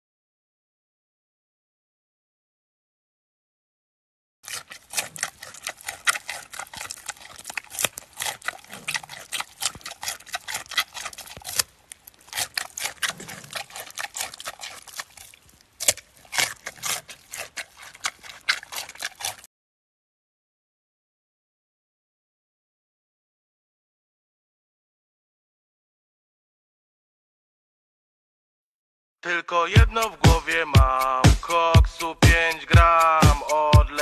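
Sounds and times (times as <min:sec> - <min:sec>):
panda crunching a carrot: 0:04.4 - 0:19.5, 0:29.9 - 0:34.0.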